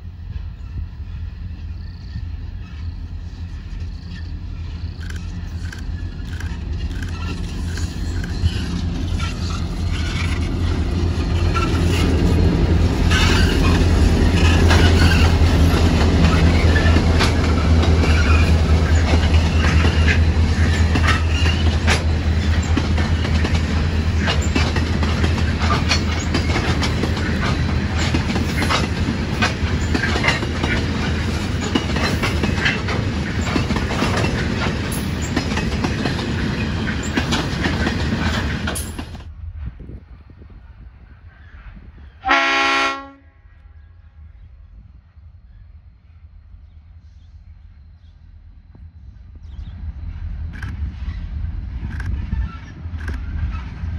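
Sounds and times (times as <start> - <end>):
locomotive engine drone: 0.0 - 31.8
train wheels clicking over rail joints: 2.0 - 39.3.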